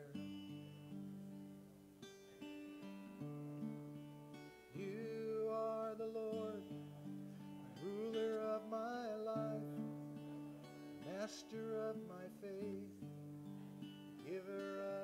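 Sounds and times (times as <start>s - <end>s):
acoustic guitar strumming: 0.0s - 15.0s
man singing held notes: 4.8s - 13.0s, 14.2s - 15.0s.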